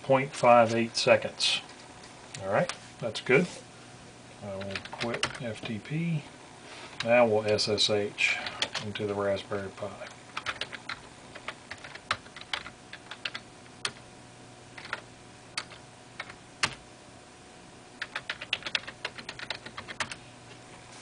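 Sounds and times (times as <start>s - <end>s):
typing on computer keyboard: 4.6s - 5.4s, 8.5s - 8.9s, 10.4s - 14.0s, 14.8s - 15.0s, 15.6s - 16.8s, 18.0s - 20.2s.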